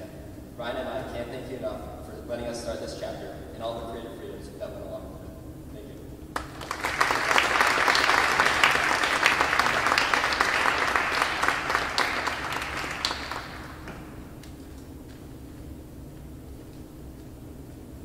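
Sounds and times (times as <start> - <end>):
audience applauding: 6.4 - 14.1.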